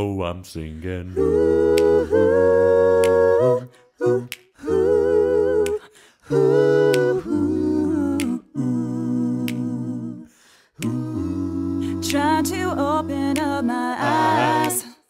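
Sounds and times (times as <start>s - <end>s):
group singing close harmony: 1.1s - 15.0s
finger snaps: 1.7s - 2.0s, 2.9s - 7.3s, 8.1s - 8.6s, 9.2s - 10.2s, 10.8s - 11.1s, 13.2s - 13.6s.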